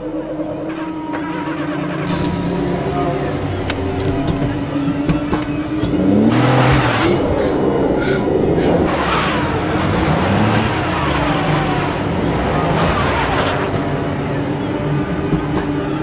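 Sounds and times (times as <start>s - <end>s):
car engine revving hard: 5.9s - 14.1s.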